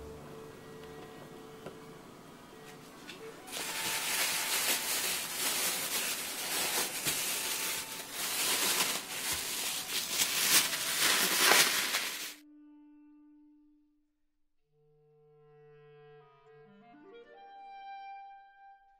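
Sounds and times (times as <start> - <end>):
plastic bag crinkling: 3.5 - 12.4.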